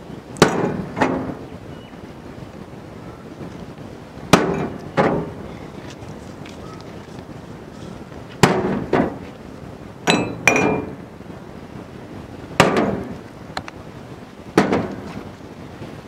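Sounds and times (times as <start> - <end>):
glass mugs knocking on metal tray: 10.1 - 11.0.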